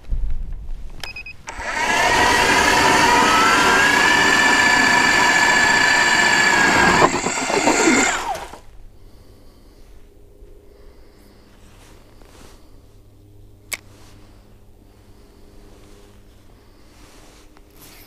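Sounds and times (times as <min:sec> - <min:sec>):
ice auger motor whining: 0:01.5 - 0:08.7.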